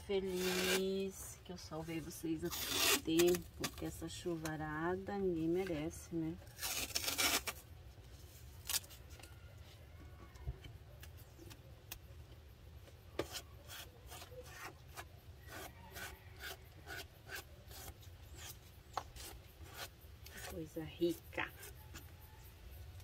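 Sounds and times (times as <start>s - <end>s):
scratchy strokes on wood: 13.2s - 20.6s.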